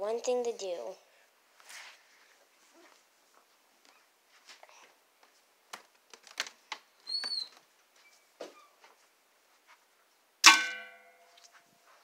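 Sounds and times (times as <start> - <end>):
footsteps: 1.6 - 6.6, 7.2 - 9.9, 11.2 - 12.0
short squeak: 7.0 - 8.8.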